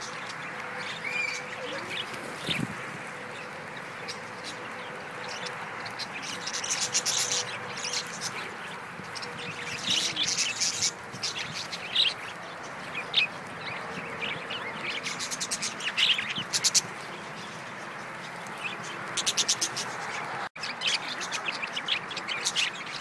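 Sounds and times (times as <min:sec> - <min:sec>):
budgerigars chirping: 0:00.0 - 0:23.0.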